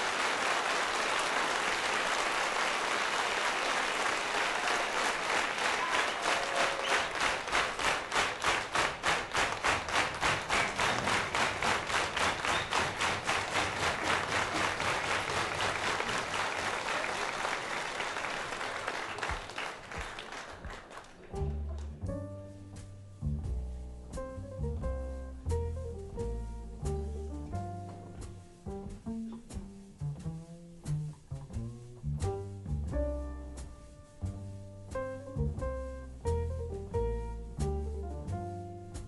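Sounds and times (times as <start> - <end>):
audience clapping in rhythm: 0.0 - 22.1
piano notes: 21.2 - 39.0
double bass: 21.3 - 39.0.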